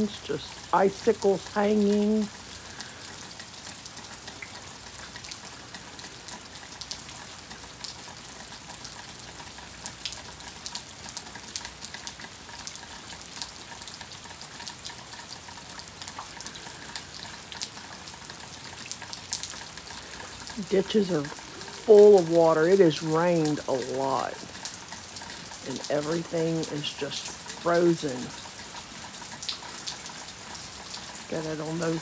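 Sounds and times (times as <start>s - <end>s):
freezing rain hissing: 0.0s - 4.2s, 14.5s - 32.0s.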